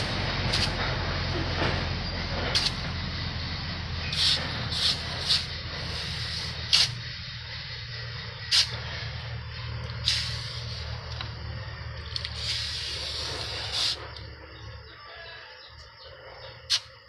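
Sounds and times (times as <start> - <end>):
hot blade hissing in quench: 0.0 - 0.8, 2.0 - 2.8, 4.0 - 7.3, 8.4 - 8.8, 10.0 - 10.9, 12.2 - 14.2
steady low hum: 0.0 - 17.0.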